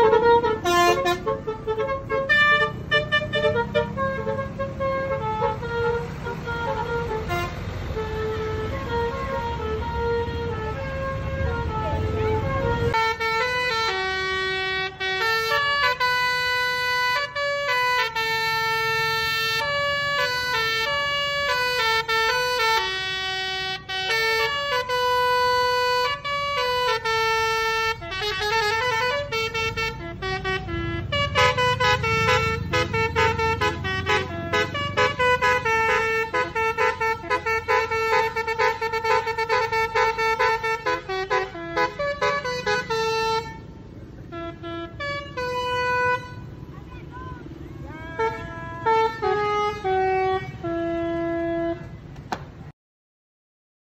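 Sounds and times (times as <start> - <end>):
multi-note bus horn melody: 0.0 - 52.6
bus engine rumbling: 0.0 - 52.7.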